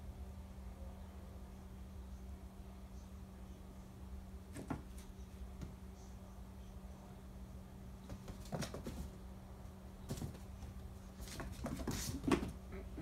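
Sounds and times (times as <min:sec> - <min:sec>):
steady low hum: 0:00.0 - 0:13.0
kittens' paws pattering on floor: 0:08.0 - 0:09.3, 0:10.0 - 0:12.8.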